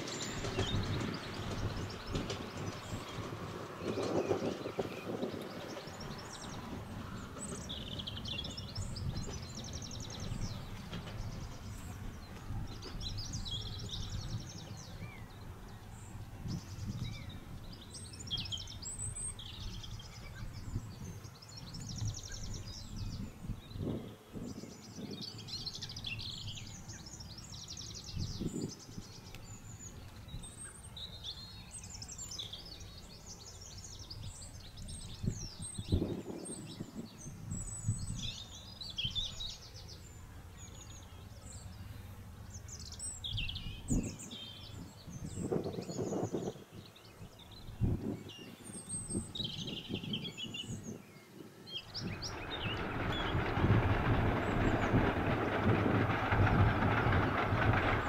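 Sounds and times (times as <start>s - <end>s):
songbirds trilling: 0.0s - 58.0s
low steady rumble: 51.9s - 58.0s.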